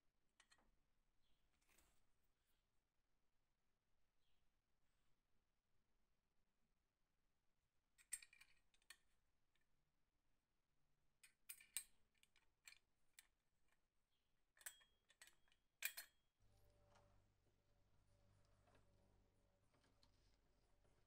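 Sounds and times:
small metallic clicks and taps: 14.6 - 16.2.

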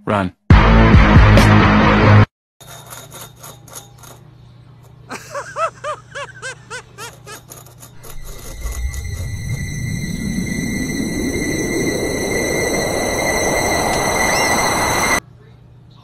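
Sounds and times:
music: 0.5 - 2.3
short squeaks: 6.7 - 10.7.

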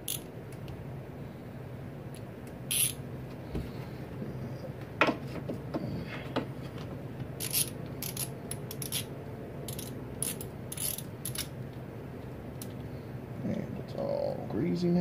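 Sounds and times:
socket ratchet clicking: 0.0 - 0.8, 2.7 - 3.0, 7.4 - 9.1, 9.7 - 11.5.

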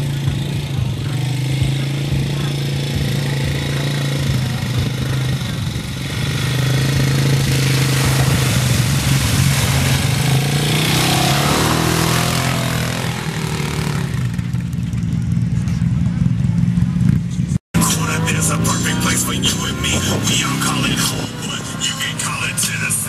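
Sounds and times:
atv engine running: 0.0 - 23.0
water splashing from wheels: 3.1 - 15.5, 17.8 - 23.0.

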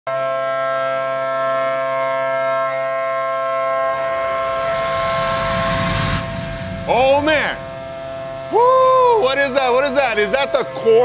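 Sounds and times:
low rumble: 3.4 - 10.4
milling cutter whining: 3.6 - 10.2.

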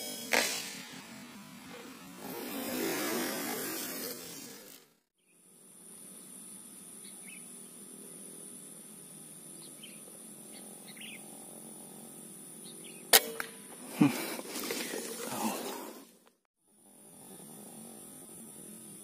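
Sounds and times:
faint bird chirps: 6.3 - 7.8, 9.5 - 11.3.

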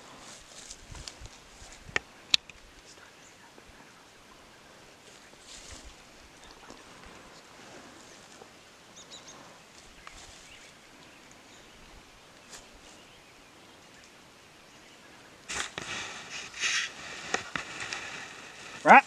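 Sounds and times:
camera rustling through dry grass: 0.0 - 3.3, 5.0 - 13.3, 15.4 - 19.0.

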